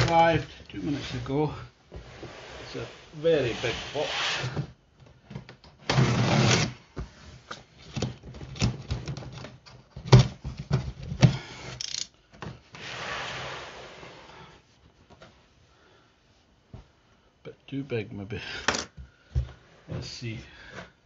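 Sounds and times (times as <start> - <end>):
cardboard rubbing and scraping: 1.9 - 4.7, 5.9 - 6.8, 12.8 - 14.3.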